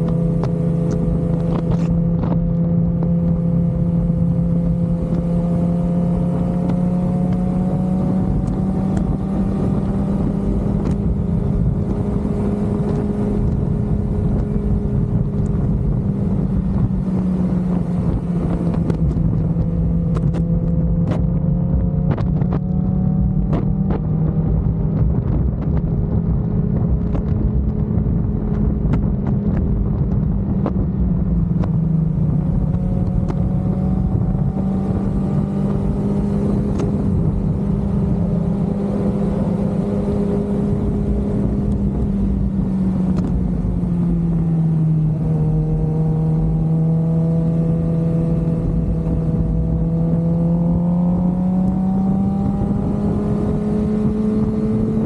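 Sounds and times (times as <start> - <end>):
motorcycle engine cruising: 0.0 - 55.0
wind rushing over microphone: 0.0 - 55.0.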